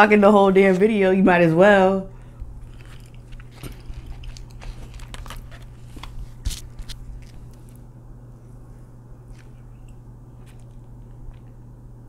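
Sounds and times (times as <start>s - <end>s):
paper packaging crinkling: 2.6s - 7.8s.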